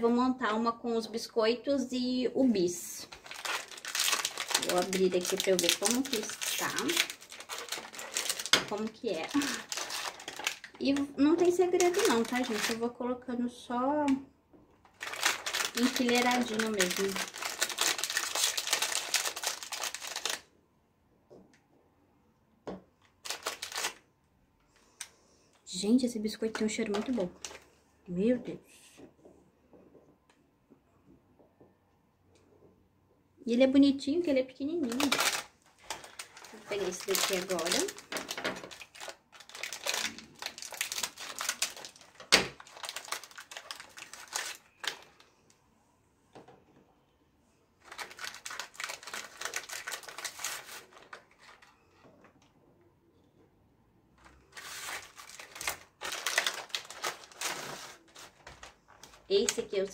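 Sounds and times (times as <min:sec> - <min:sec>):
plastic wrapper crinkling: 0:02.8 - 0:13.0, 0:14.8 - 0:20.5, 0:23.1 - 0:24.0, 0:26.8 - 0:27.7, 0:34.7 - 0:45.5, 0:47.8 - 0:52.0, 0:54.2 - 0:59.9.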